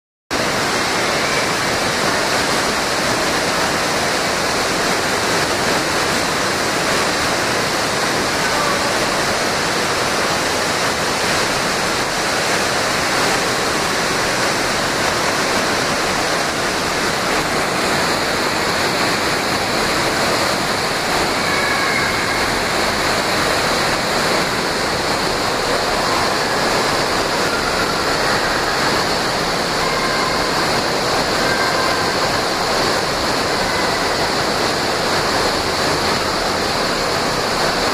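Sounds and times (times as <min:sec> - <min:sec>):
water gushing into pool: 0:00.4 - 0:37.9.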